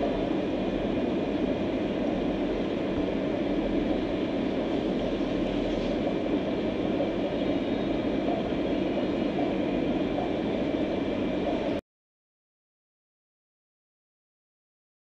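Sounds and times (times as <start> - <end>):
aquarium filter bubbling and humming: 0.0 - 11.8.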